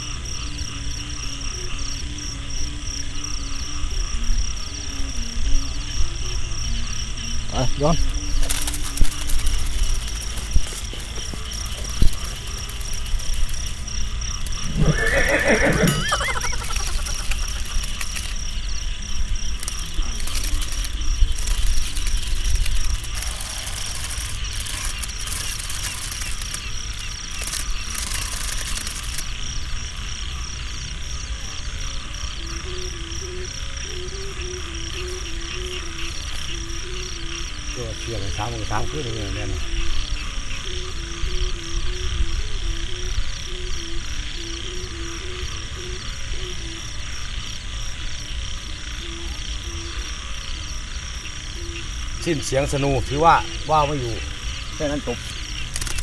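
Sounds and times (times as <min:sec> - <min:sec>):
kite hummer humming: 0:00.0 - 0:29.4
night insects chirring: 0:00.0 - 0:56.0
kite hummer droning: 0:15.8 - 0:30.0.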